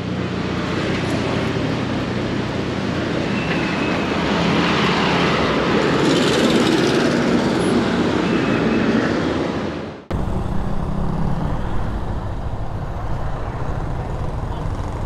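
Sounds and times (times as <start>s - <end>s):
traffic rushing: 0.0s - 15.0s
vehicle engines humming: 0.0s - 15.0s.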